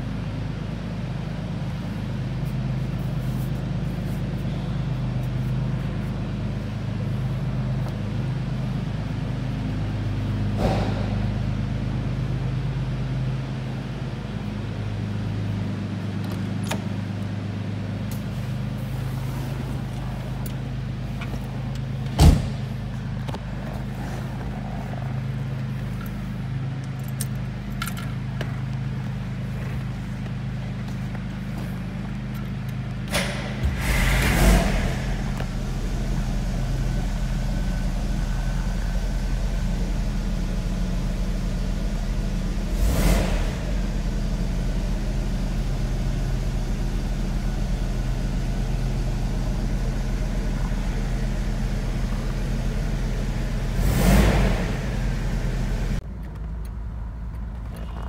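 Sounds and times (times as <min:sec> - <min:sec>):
car engine idling: 0:00.0 - 0:58.0.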